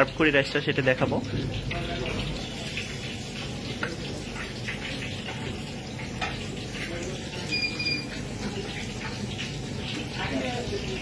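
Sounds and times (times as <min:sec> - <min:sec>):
short high beep: 0:07.5 - 0:08.1.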